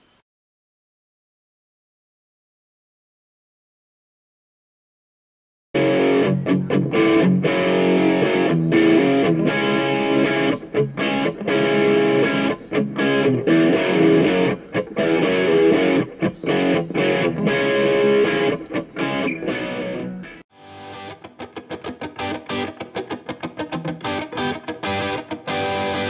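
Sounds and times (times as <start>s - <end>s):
distorted electric guitar music: 5.8s - 26.0s.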